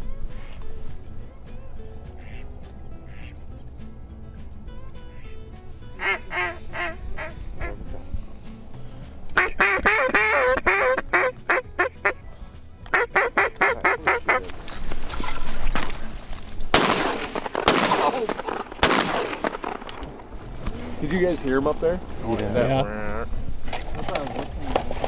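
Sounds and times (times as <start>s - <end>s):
duck call quacking: 2.2s - 2.4s, 3.1s - 3.4s, 6.0s - 7.8s, 9.4s - 12.2s, 12.9s - 14.4s
rustling: 13.5s - 22.5s, 23.1s - 25.0s
loud shotgun shots: 16.7s - 20.4s.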